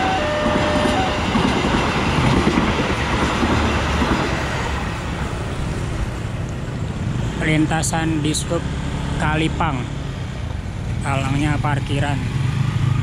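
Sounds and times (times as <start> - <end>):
train wheels clattering on rails: 0.0 - 4.8.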